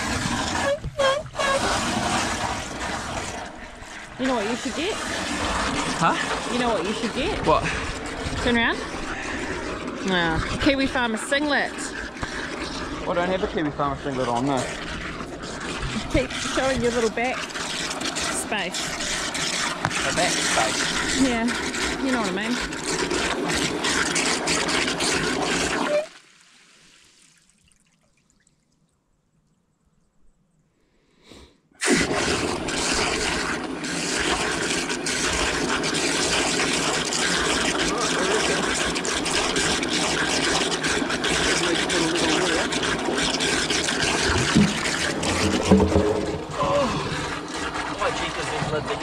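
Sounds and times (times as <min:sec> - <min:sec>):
water splashing into trough: 0:00.0 - 0:28.8, 0:31.8 - 0:49.0.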